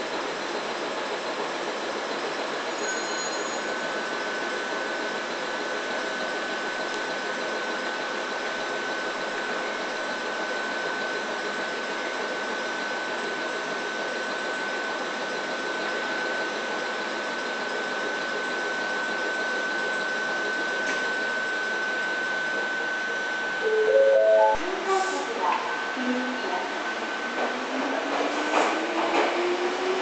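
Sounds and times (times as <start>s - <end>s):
mechanical hum: 19.1s - 30.0s
high-pitched tone: 23.6s - 26.4s.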